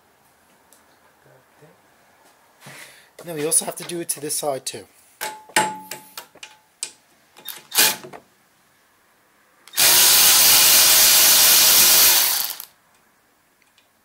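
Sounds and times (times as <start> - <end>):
power drill spinning: 7.5 - 8.0, 9.7 - 12.7.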